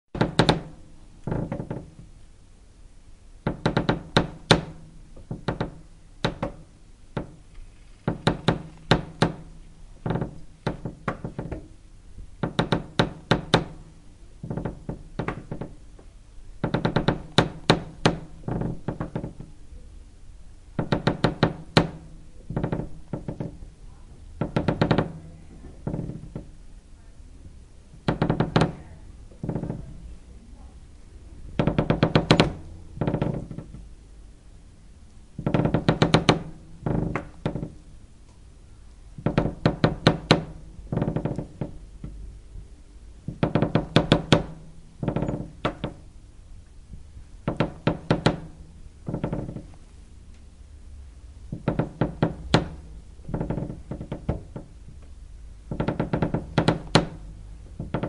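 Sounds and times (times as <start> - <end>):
wood creaking under strain: 0.2 - 2.1, 7.2 - 11.8, 12.4 - 19.6, 20.8 - 23.7, 24.4 - 26.6, 28.0 - 30.1, 31.4 - 33.9, 35.4 - 37.8, 39.2 - 42.2, 43.3 - 46.1, 47.5 - 49.9, 51.5 - 55.1, 55.7 - 58.0.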